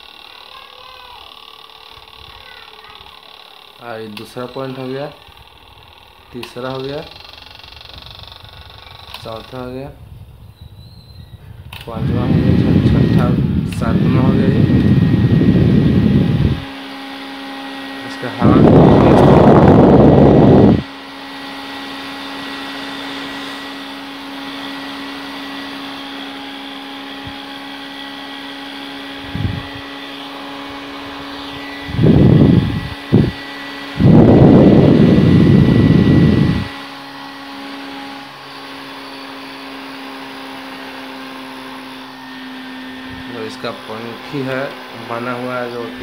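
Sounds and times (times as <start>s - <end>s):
desk fan motor hum: 0.0s - 46.0s
wind noise on microphone: 7.6s - 16.7s, 18.2s - 20.9s, 29.1s - 36.8s, 43.0s - 43.3s.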